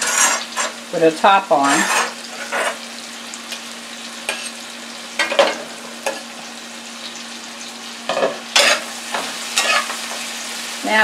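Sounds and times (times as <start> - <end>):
metal spoon scraping a pan: 0.0 - 0.8, 1.5 - 2.8, 4.3 - 4.6, 8.1 - 10.2
vegetables sizzling in frying pan: 0.0 - 11.0.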